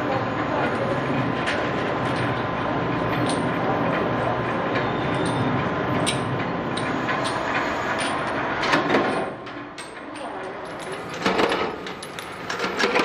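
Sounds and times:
power press drone and hum: 0:00.0 - 0:13.0.

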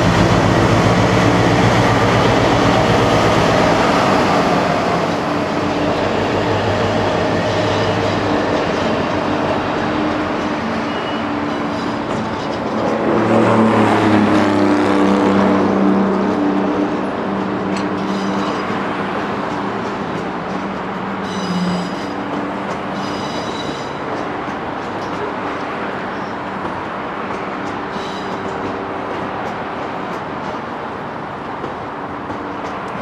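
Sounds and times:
rumble of train wheels: 0:00.0 - 0:33.0
wheel squeals: 0:10.7 - 0:12.6, 0:18.0 - 0:18.8, 0:21.2 - 0:22.3, 0:22.9 - 0:24.2.

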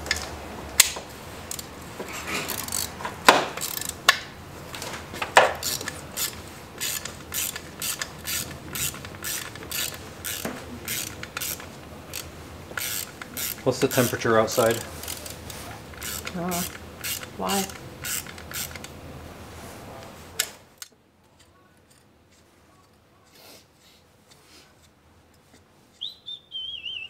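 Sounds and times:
socket ratchet clicking: 0:02.5 - 0:03.0, 0:03.6 - 0:04.2, 0:05.4 - 0:19.0.

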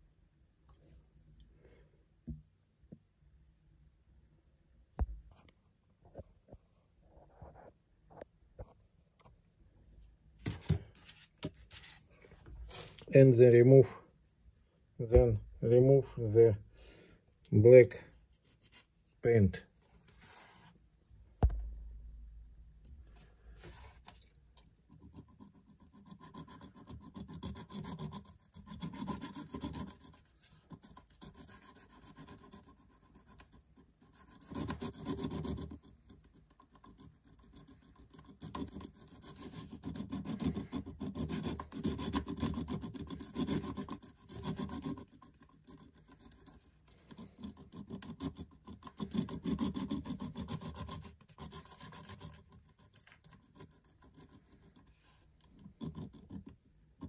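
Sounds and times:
sharp bump: 0:21.4 - 0:22.6
file rasping on metal: 0:38.3 - 0:46.0.

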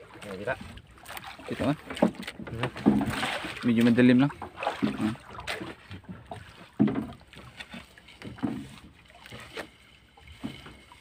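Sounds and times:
knocks against boat hull: 0:01.9 - 0:03.9, 0:04.6 - 0:07.2.

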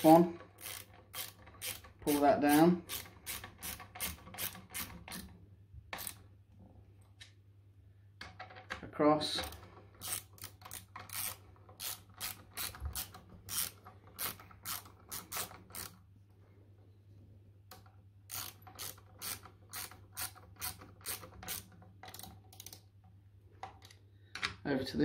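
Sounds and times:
hand ratchet clicking: 0:00.0 - 0:05.3, 0:06.0 - 0:06.2, 0:09.4 - 0:16.0, 0:17.7 - 0:22.8.

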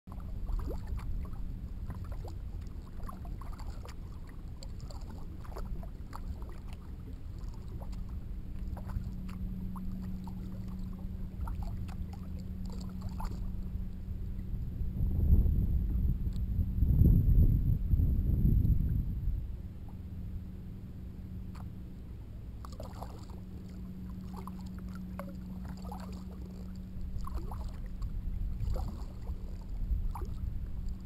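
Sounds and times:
paddle splashes and water drips: 0:00.1 - 0:14.5, 0:21.5 - 0:31.0
continuous low rumble: 0:00.1 - 0:31.0
faint low hum: 0:00.1 - 0:31.0.

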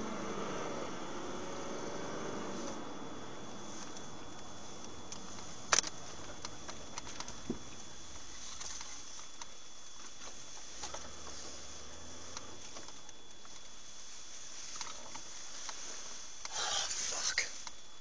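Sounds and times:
car cabin hiss: 0:00.0 - 0:09.1, 0:13.6 - 0:17.7
faint high whine: 0:00.0 - 0:18.0
small clicks and rattles: 0:03.7 - 0:11.6.

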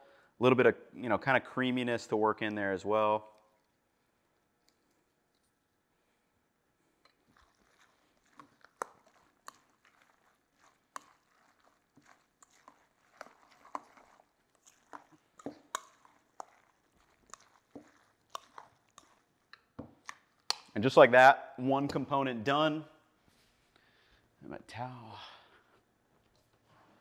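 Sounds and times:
wet salad tossing: 0:07.1 - 0:21.2.

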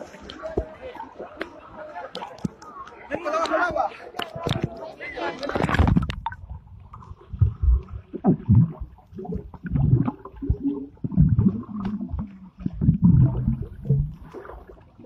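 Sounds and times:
muffled underwater gurgling: 0:05.5 - 0:15.0.

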